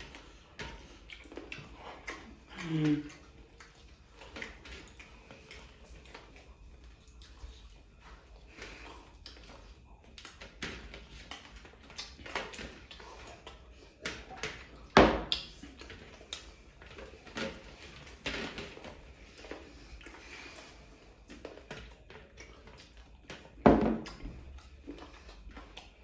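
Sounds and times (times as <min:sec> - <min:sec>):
chewing and mouth smacks: 0:00.0 - 0:26.0.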